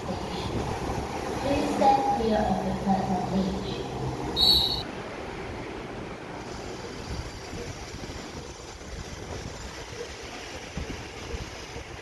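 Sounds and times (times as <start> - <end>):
low rumble of wind: 0.0 - 12.0
brief high-pitched tone: 4.4 - 4.8.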